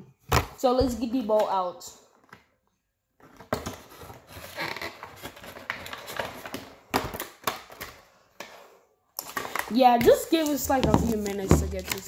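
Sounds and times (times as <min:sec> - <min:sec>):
plastic packaging crinkling: 0:09.2 - 0:12.0.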